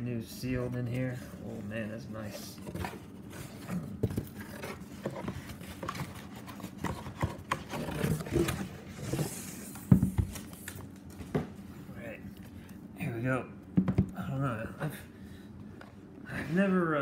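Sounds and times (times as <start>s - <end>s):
box scraping against cardboard: 0.6s - 9.8s.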